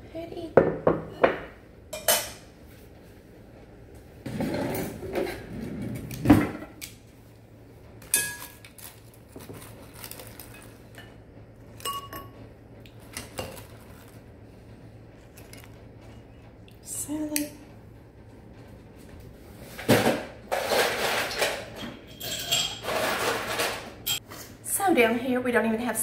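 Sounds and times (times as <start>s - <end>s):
utensils scraping in glass bowl: 22.1s - 24.2s.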